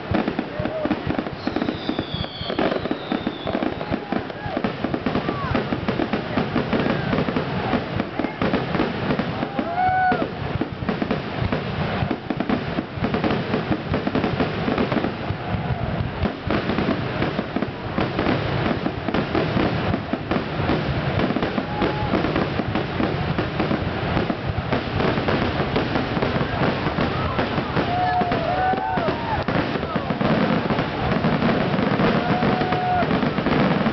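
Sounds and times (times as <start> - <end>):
firework whistles: 0.0 - 7.7, 21.2 - 22.5, 25.7 - 33.9
fireworks bursting and crackling: 0.0 - 33.9.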